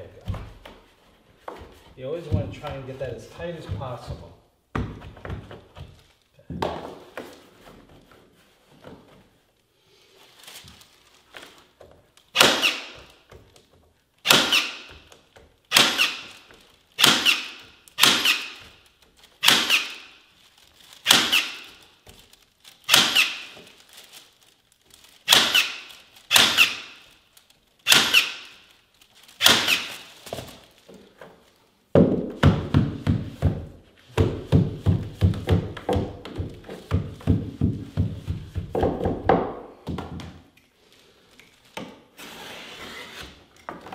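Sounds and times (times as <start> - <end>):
staple gun firing: 27.9 - 28.4, 29.4 - 29.9.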